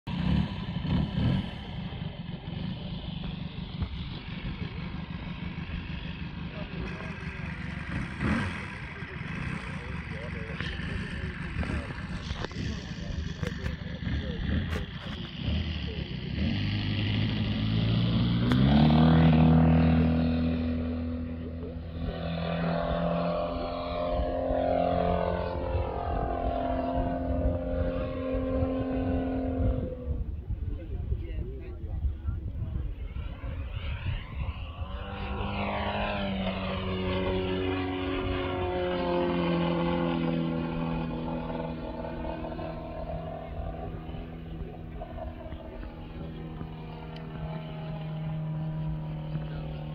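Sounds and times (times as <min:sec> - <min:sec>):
model plane engine idling: 0:00.1 - 0:49.9
wind on microphone: 0:19.1 - 0:49.1.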